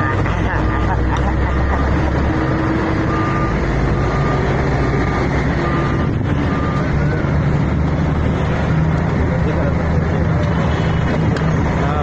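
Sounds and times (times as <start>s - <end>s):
electronic warning beeps: 0.0s - 7.6s
heavy truck engine running: 0.0s - 12.0s.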